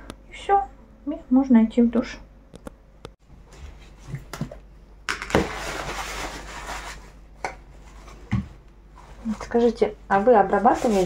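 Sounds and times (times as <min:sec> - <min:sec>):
cloth rustling: 0:07.8 - 0:11.0.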